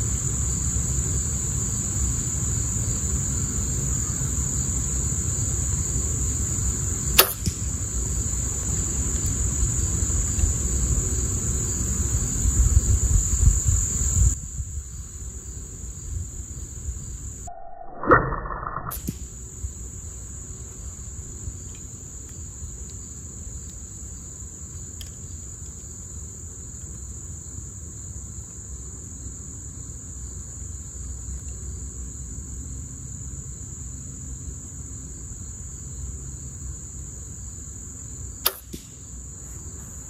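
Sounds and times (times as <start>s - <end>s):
high-pitched insect trill: 0.0s - 40.0s
faint ticks: 24.7s - 26.0s.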